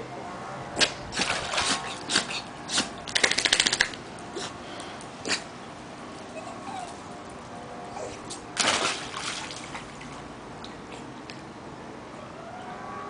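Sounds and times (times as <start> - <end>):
dog paws splashing in shallow water: 8.3 - 10.3.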